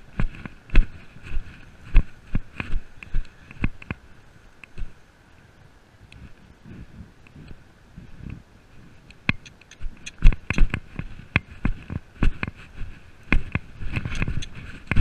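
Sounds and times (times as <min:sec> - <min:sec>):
horse hooves striking ground: 0:00.0 - 0:04.0, 0:06.2 - 0:15.0
tack and camera clicking: 0:09.1 - 0:10.8, 0:13.4 - 0:15.0.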